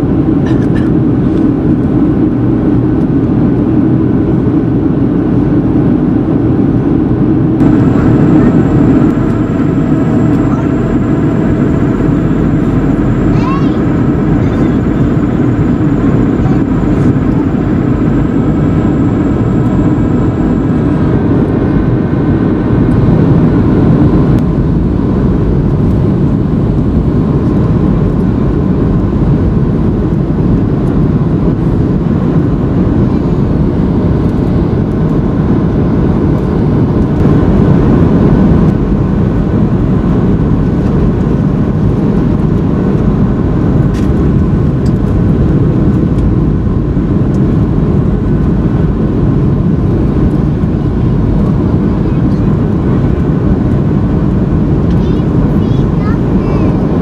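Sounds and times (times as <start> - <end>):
jet engines running: 0.0 - 57.0
air rushing past fuselage: 6.4 - 33.0.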